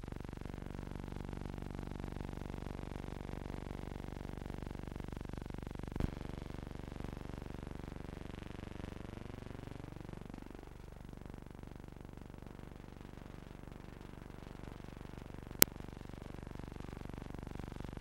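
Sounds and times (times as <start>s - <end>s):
electrical hum with hiss: 0.0s - 18.0s.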